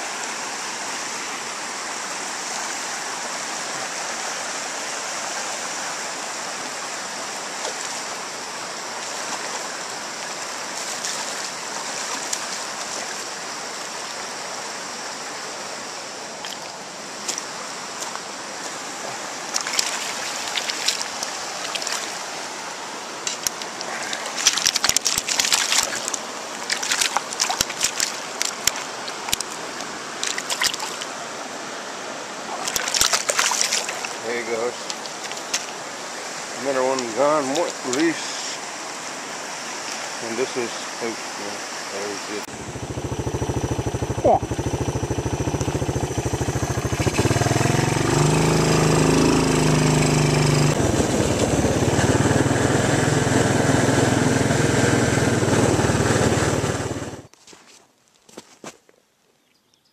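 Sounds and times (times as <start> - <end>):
river water rushing over stones: 0.0 - 42.7, 45.4 - 57.2
fish thrashing and splashing: 19.5 - 22.4, 23.3 - 31.1, 32.4 - 34.2, 34.8 - 35.8, 46.9 - 47.7.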